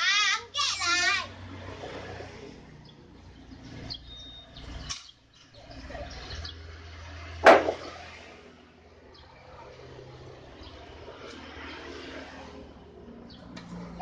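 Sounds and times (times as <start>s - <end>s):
wooden plank clacking onto planks: 7.4s - 8.0s.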